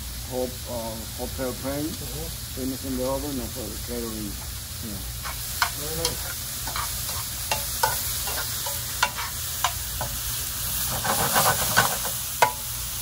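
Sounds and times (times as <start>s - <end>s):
vegetables sizzling in a frying pan: 0.0s - 13.0s
metal tongs clinking on pan: 5.2s - 10.2s.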